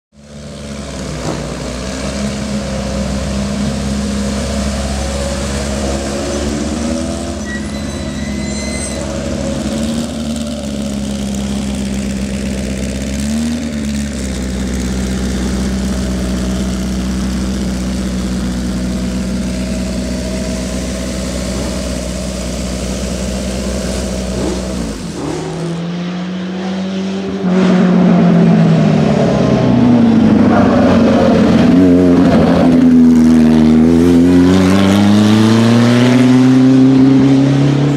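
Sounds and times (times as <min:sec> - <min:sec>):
racing car engine: 0:00.2 - 0:37.9.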